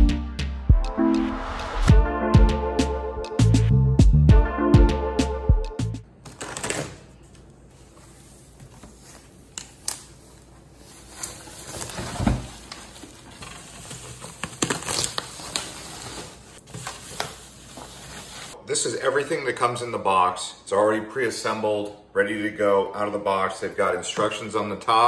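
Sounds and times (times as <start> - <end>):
plastic wrapping crinkling: 9.0 - 18.6.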